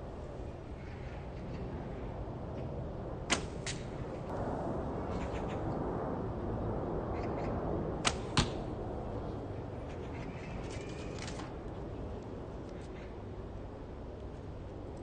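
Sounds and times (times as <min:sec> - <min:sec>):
arrow crack: 0:03.3 - 0:04.4, 0:08.0 - 0:08.7
bow string snap: 0:08.0 - 0:08.6
arrow handling clicks: 0:08.1 - 0:08.6.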